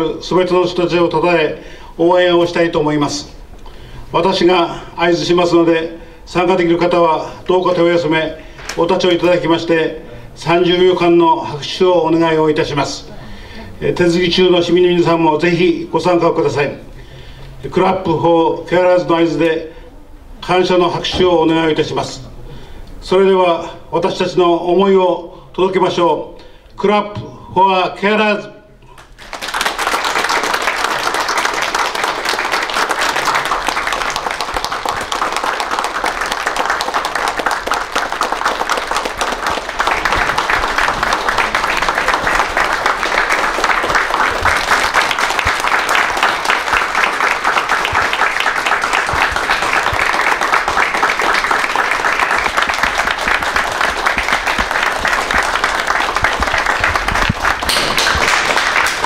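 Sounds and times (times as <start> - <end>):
crowd applauding: 28.9 - 59.0.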